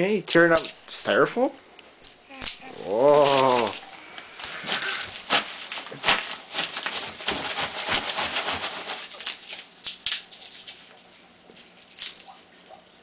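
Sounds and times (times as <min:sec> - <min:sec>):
packing peanuts rustling and crackling: 0:02.1 - 0:12.2.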